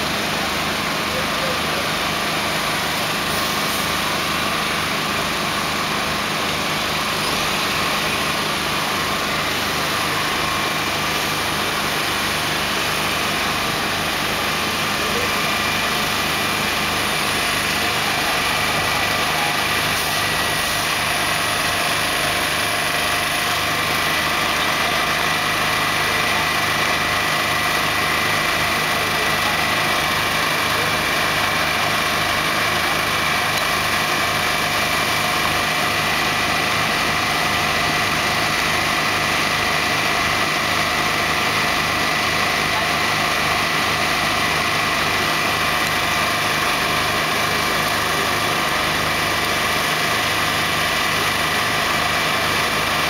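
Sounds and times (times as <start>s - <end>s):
diesel truck engine idling: 0.0s - 53.0s.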